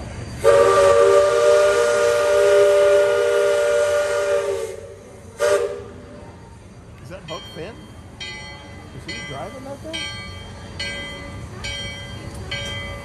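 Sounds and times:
steam whistle blowing: 0.4 - 6.0.

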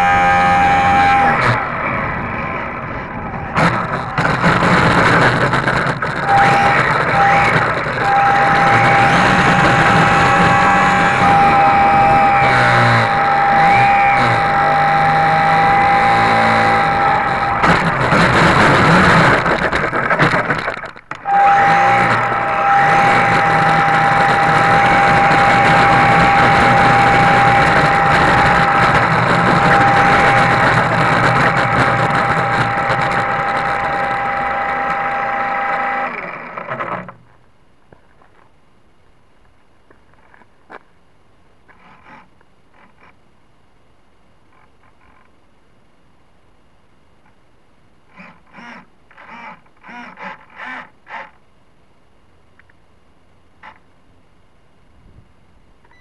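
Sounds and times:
electric motor and propeller whine: 0.0 - 37.3, 48.1 - 51.4.

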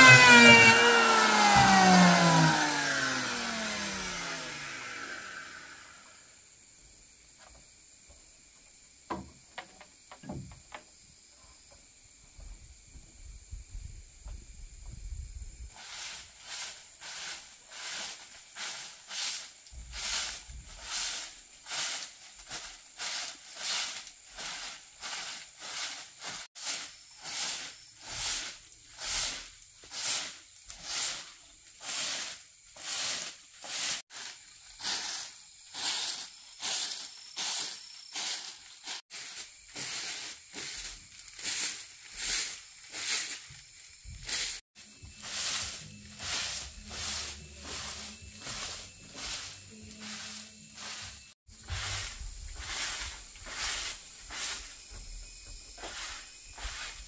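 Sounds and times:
hand tool rasping on wood: 0.0 - 5.3.

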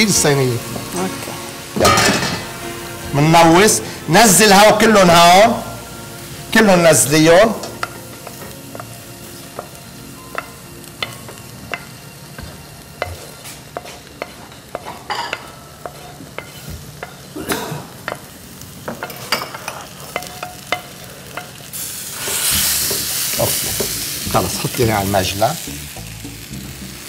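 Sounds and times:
food sizzling: 0.0 - 27.0
spoon knocking against pans: 9.6 - 17.3
wooden spoon scraping a pan: 13.0 - 16.9.

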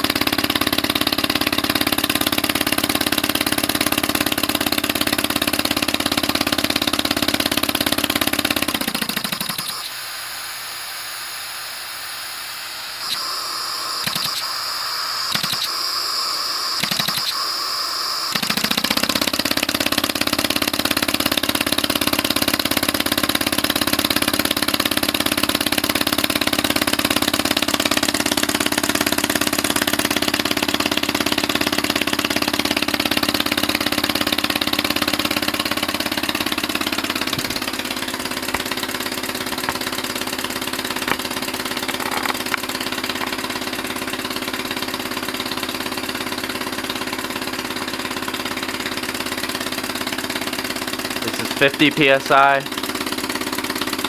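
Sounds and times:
small engine running fast: 0.0 - 54.0
air hissing: 9.8 - 18.4
sharp knocks: 39.4 - 39.9, 41.0 - 41.3.

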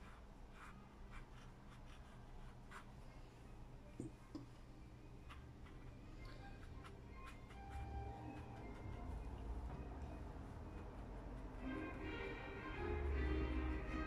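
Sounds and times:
paintbrush scratching on paper: 0.0 - 3.0, 5.2 - 9.6
low steady hum: 0.0 - 14.0.

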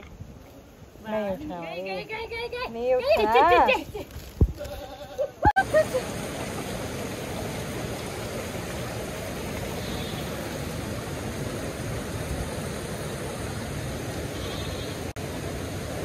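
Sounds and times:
stream rushing over rocks: 5.5 - 16.0.

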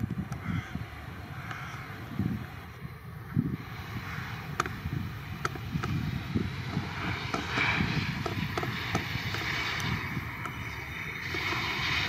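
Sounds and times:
aircraft engines rumbling: 0.0 - 12.0
wind buffeting microphone: 0.0 - 12.0.

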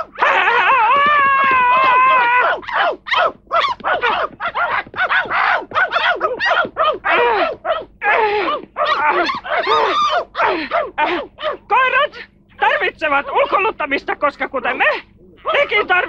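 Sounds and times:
dogs barking and yapping: 0.0 - 13.8, 14.8 - 16.0.

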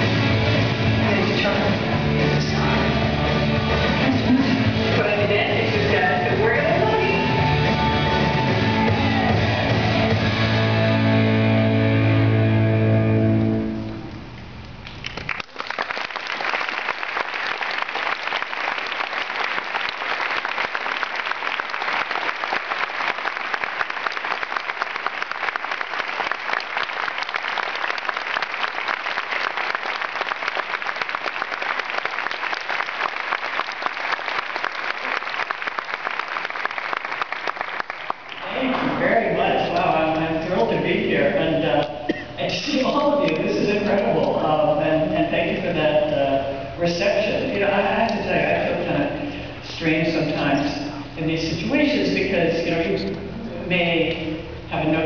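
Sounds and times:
large audience applauding: 14.8 - 39.0.

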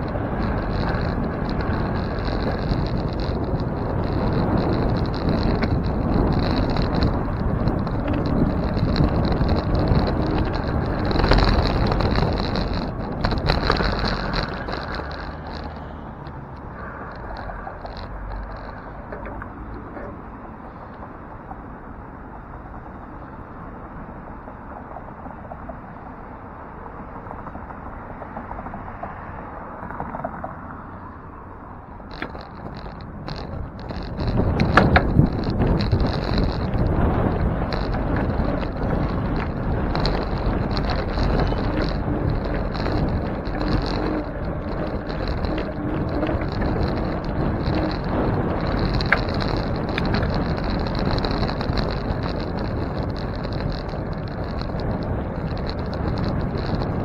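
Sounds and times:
bicycle rolling: 0.0 - 57.0
city traffic noise: 0.0 - 57.0
road noise rumble: 0.0 - 57.0
wind rushing over microphone: 0.0 - 57.0.

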